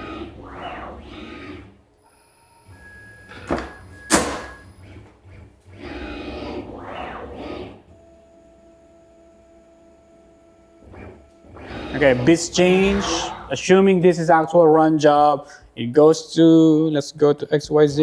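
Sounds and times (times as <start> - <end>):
router motors whining: 4.4 - 13.9.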